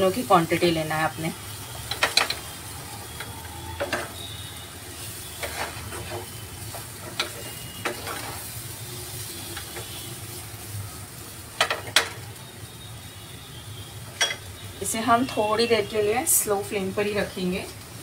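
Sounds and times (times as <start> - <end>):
soft sizzle: 0.0 - 18.0
spatula scraping frying pan: 3.1 - 8.6.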